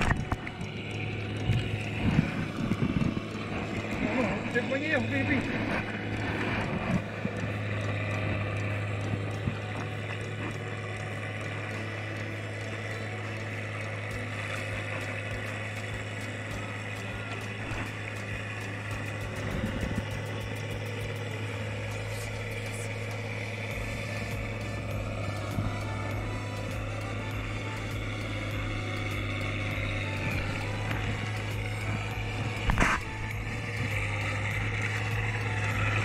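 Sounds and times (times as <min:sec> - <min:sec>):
tractor engine running: 0:00.0 - 0:36.0.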